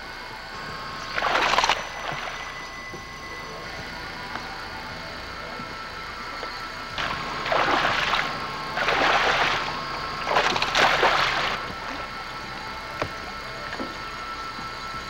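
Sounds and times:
fish thrashing water splashing: 0:01.1 - 0:02.6, 0:07.0 - 0:12.1.

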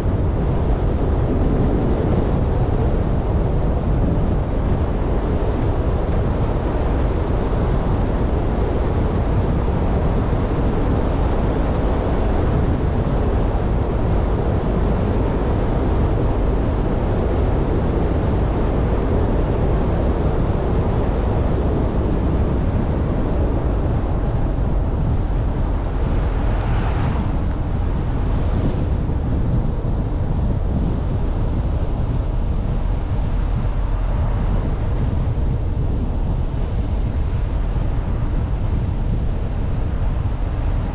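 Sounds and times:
wind noise on microphone: 0:00.0 - 0:40.9
vehicle road noise: 0:22.5 - 0:39.0.

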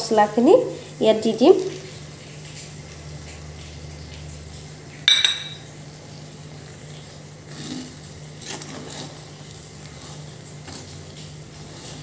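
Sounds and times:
metal clink on iron pan: 0:05.1 - 0:05.7.

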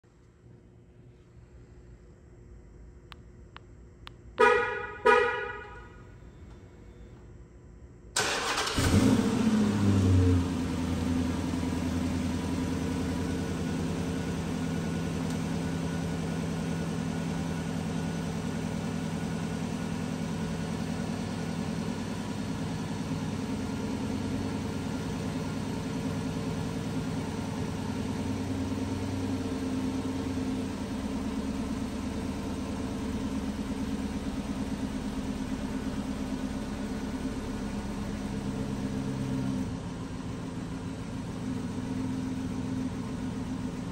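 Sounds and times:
car engine cranking: 0:08.2 - 0:09.6
car engine idling: 0:08.2 - 0:43.9.

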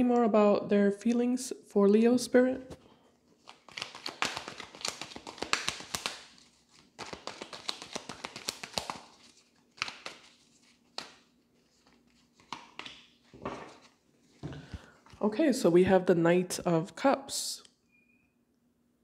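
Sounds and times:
cards being shuffled: 0:03.4 - 0:14.0.

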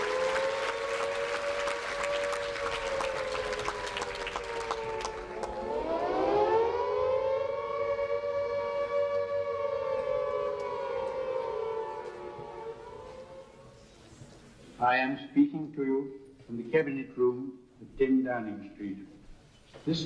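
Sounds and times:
people clapping: 0:00.0 - 0:06.1, 0:10.6 - 0:12.5
air-raid siren wailing: 0:00.0 - 0:14.3.

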